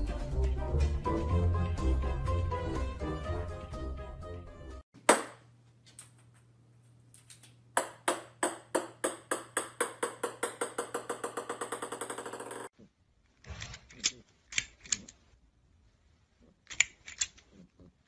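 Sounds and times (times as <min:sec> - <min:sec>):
plastic ball bouncing on wooden floor: 0:07.8 - 0:12.7.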